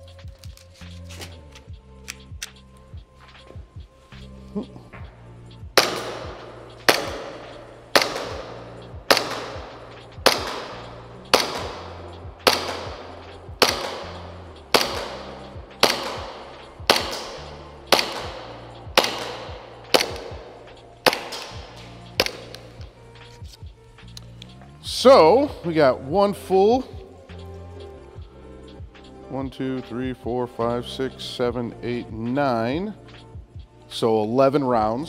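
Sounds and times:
background music: 0.0s - 35.0s
airsoft pistol shots echoing: 5.8s - 23.0s.

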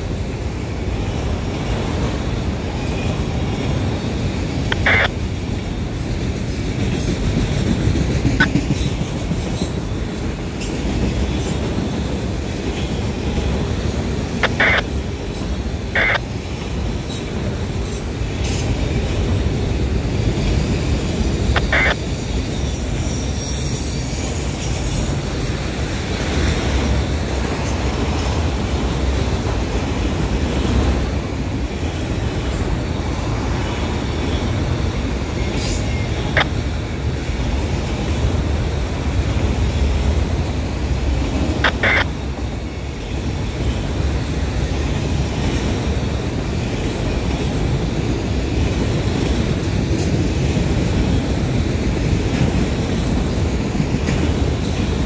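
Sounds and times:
train wheels rumbling on rails: 0.0s - 55.0s
high wheel squeals: 21.8s - 25.2s.

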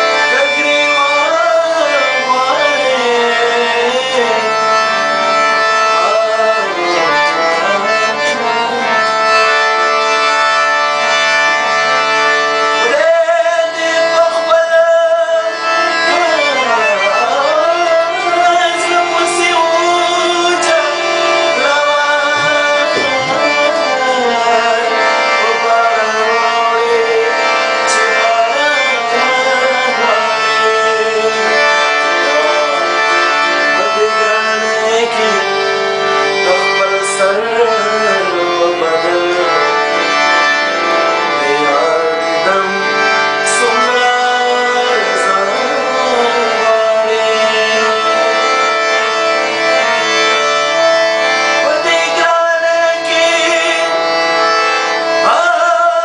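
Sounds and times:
harmonium chords: 0.0s - 56.0s
man singing: 0.0s - 56.0s.

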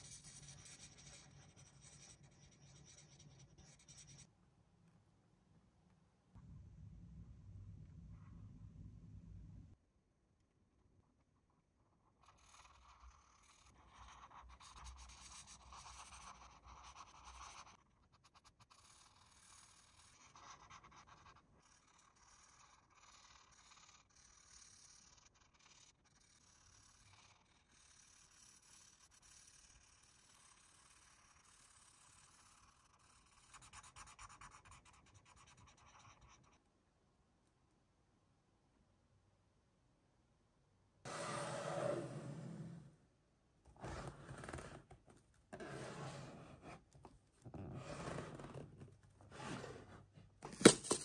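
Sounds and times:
faint rapid scratching: 0.0s - 4.3s, 11.6s - 36.6s
faint scratching and scraping: 0.0s - 4.4s, 43.7s - 50.5s.

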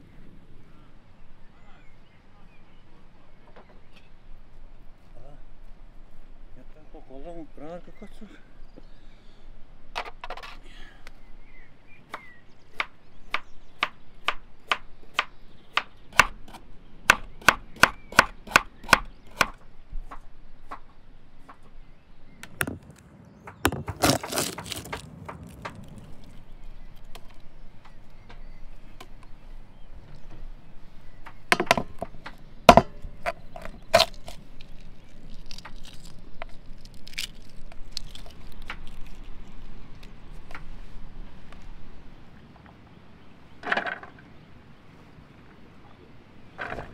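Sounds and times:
eggshell crackling: 22.4s - 28.2s, 31.4s - 40.6s
shell being peeled: 23.7s - 27.5s, 33.2s - 40.7s.

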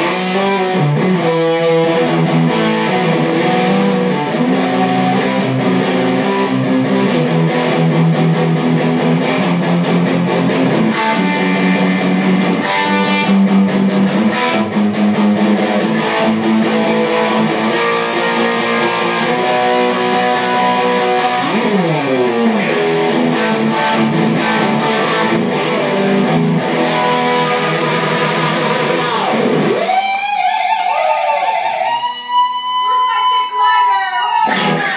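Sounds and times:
electric guitar playing: 0.0s - 34.9s.

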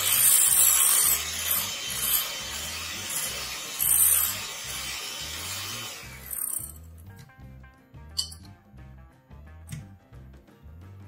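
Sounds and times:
electric hand mixer whipping cream: 0.0s - 6.8s.

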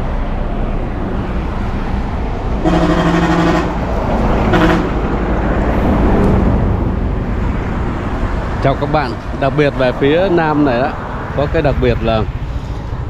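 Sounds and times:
highway traffic rumble: 0.0s - 13.0s
vehicle horn: 2.6s - 5.0s.

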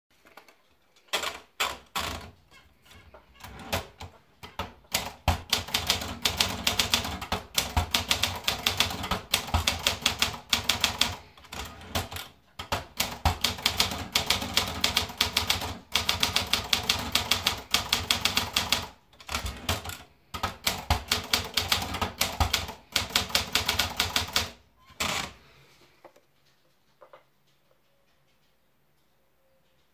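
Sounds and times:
manual typewriter typing: 1.0s - 2.4s, 3.0s - 25.4s.

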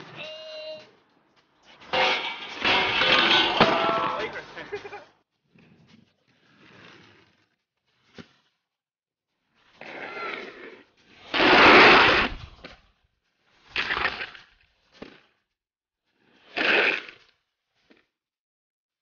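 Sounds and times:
skates clacking on ground: 0.0s - 7.5s
inline skates grinding on concrete: 1.7s - 4.7s, 5.4s - 8.7s, 9.4s - 12.8s, 13.4s - 15.4s, 16.1s - 18.1s.

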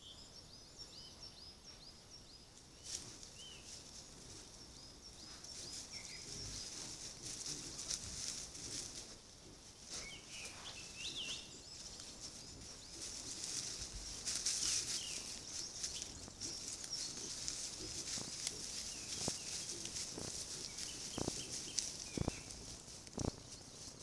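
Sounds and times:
small birds chirping: 0.0s - 24.0s
steady high hiss: 0.0s - 24.0s
animals rustling through dry leaves: 2.8s - 24.0s.

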